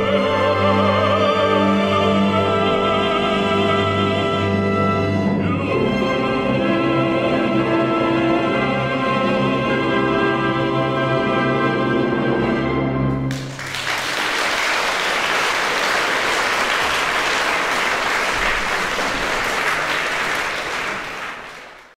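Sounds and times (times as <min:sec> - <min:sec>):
audience applause: 0:13.3 - 0:22.0.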